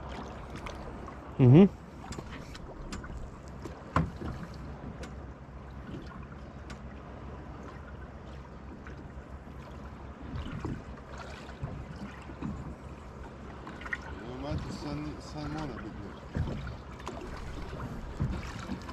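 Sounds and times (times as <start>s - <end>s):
low steady hum: 0.0s - 18.9s
water lapping at hull: 0.0s - 18.9s
light knocks on boat: 1.8s - 5.2s, 5.8s - 7.0s, 7.6s - 18.9s.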